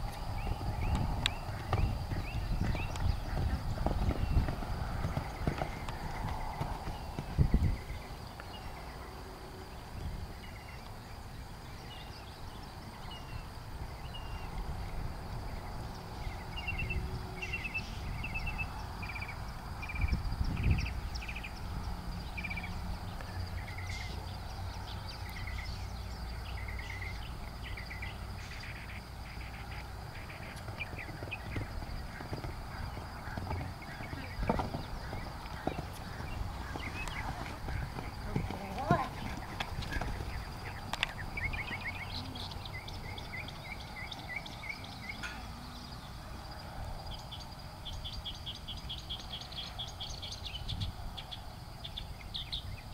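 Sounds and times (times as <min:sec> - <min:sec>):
horse hoofbeats on sand: 0:00.0 - 0:08.0, 0:30.2 - 0:40.8
horse landing thuds: 0:00.9 - 0:07.8, 0:30.6 - 0:40.4.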